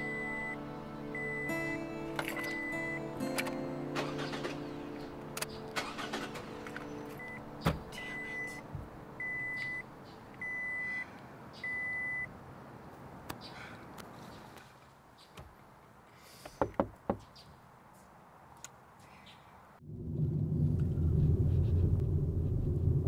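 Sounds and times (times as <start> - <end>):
soft music: 0.0 - 10.6
car warning chime beeping: 0.0 - 11.0, 11.6 - 12.3.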